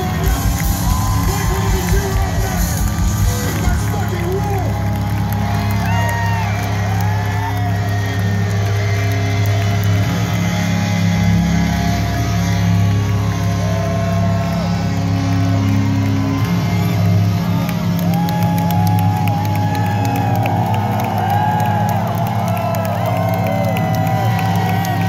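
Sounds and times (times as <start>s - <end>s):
live rock band playing loud: 0.0s - 20.1s.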